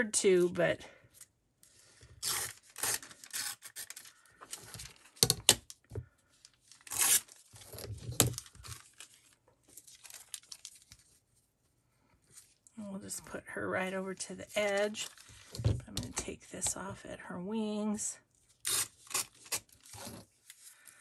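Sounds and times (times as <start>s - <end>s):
paper tearing: 2.2s - 4.2s, 6.8s - 7.9s, 18.6s - 20.2s
paper handling: 6.4s - 11.2s, 14.4s - 15.6s.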